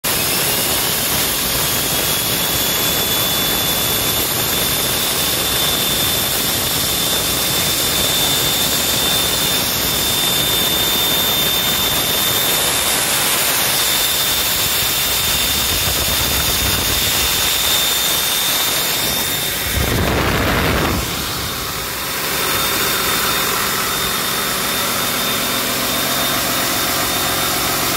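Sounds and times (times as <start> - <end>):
high whine: 0.1 - 27.9
diesel engine running: 8.0 - 27.9.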